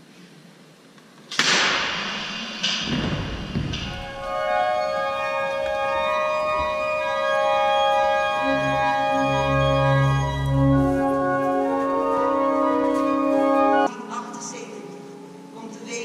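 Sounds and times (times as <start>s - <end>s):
organ chords: 3.6s - 13.9s
deep organ bass pedal notes: 3.8s - 13.9s.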